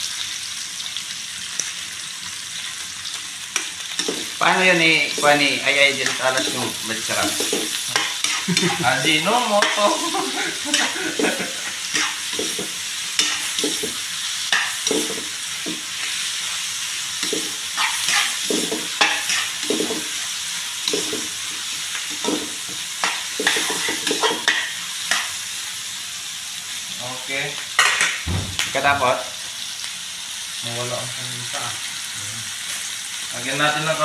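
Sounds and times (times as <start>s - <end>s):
vegetables sizzling in a wok: 0.0s - 34.0s
spatula scraping wok: 3.5s - 25.4s.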